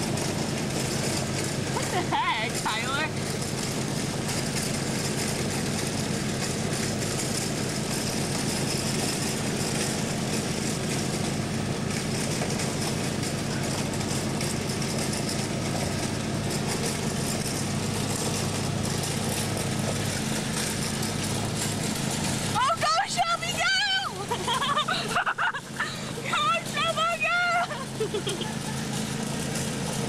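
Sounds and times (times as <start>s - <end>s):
lawn mower engine running: 0.0s - 30.0s.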